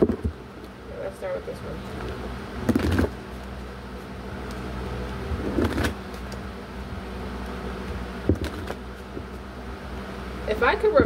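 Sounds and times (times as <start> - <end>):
steady low hum: 0.0 - 11.0
cards being shuffled: 4.4 - 6.4, 8.3 - 9.4.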